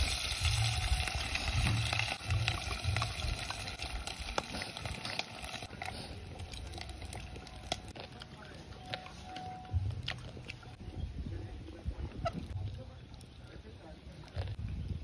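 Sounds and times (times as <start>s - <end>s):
wet chewing and slurping: 0.0s - 10.8s.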